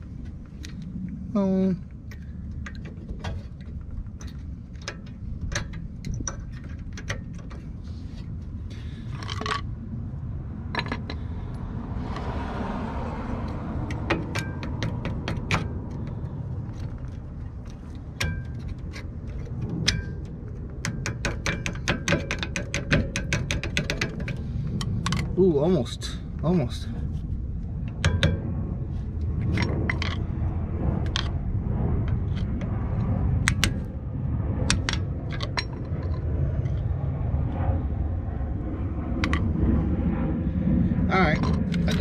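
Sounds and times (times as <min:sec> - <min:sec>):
steady low rumble: 0:00.0 - 0:42.0
small metal clicks and scraping: 0:01.9 - 0:09.8, 0:13.4 - 0:25.4, 0:29.2 - 0:30.4, 0:34.6 - 0:36.9, 0:41.3 - 0:42.0.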